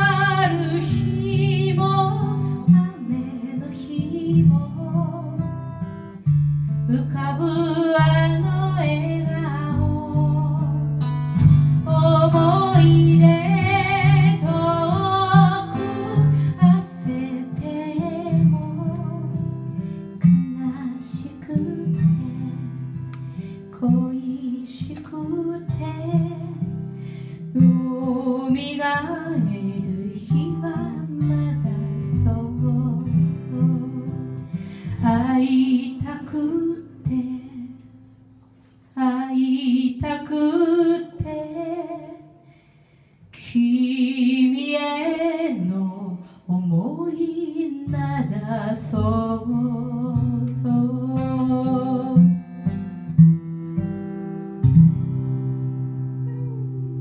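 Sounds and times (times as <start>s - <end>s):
woman singing with vibrato: 0.0s - 5.6s, 6.9s - 10.8s, 11.8s - 19.4s, 27.6s - 34.2s, 35.0s - 37.8s, 39.0s - 42.4s, 43.4s - 52.2s
acoustic guitar: 0.0s - 57.0s.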